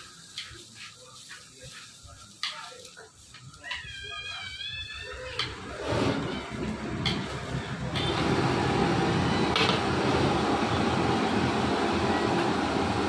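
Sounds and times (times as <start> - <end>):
gas burner roaring: 0.0 - 13.0
metal spatula scraping a wok: 5.3 - 9.8.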